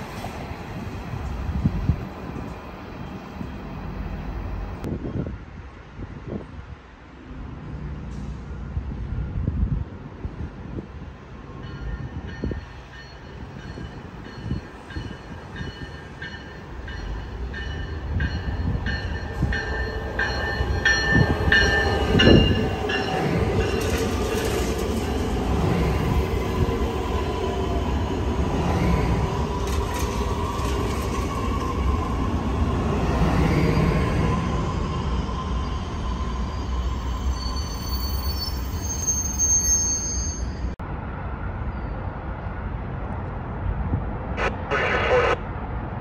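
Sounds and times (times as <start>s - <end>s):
train rumble: 0.0s - 39.0s
station bell ringing: 11.5s - 25.4s, 34.7s - 40.8s
wheel-on-rail noise: 20.3s - 36.8s.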